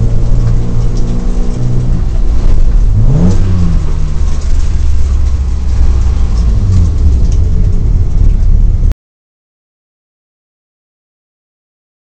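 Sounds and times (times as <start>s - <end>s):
race car engine rumbling: 0.0s - 8.9s.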